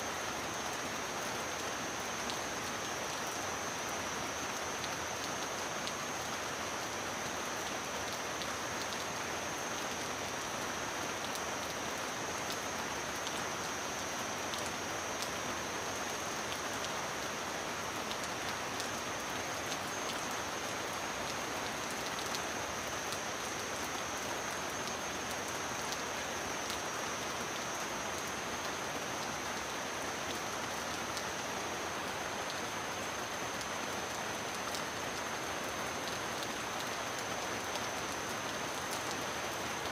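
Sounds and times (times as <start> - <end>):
heavy rain on a metal roof: 0.0 - 39.9.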